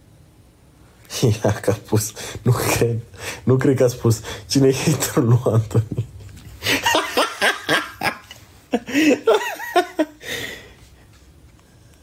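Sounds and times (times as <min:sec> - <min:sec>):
man laughing: 0:04.8 - 0:10.4.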